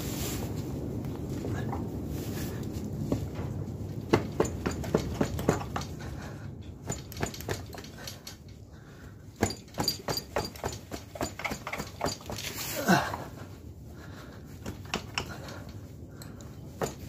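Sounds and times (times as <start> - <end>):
hand tools clicking on metal: 4.1 - 8.6, 9.3 - 13.0, 14.6 - 17.0.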